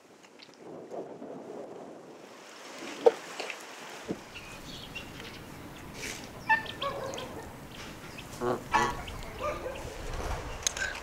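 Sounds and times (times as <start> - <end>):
poultry honking calls: 4.4 - 9.8.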